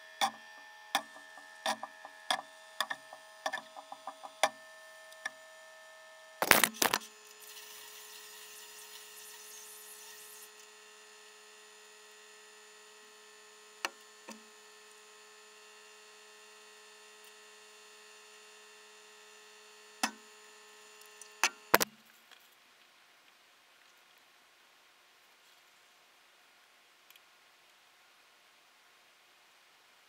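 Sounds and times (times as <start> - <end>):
steady electrical hum: 0.0 - 23.6.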